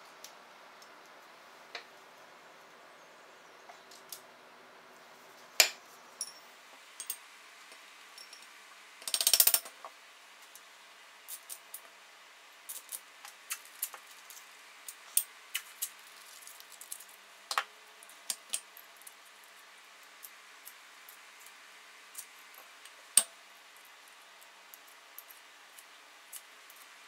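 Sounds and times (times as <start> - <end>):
rapid ratchet clicks: 9.0 - 9.7.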